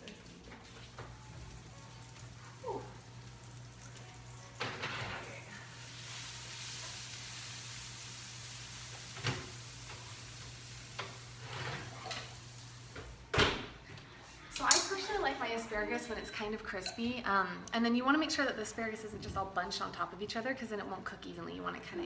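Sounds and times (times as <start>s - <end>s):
asparagus sizzling on a hot pan: 1.1s - 13.1s
pan and oven rack clanking: 10.8s - 12.5s.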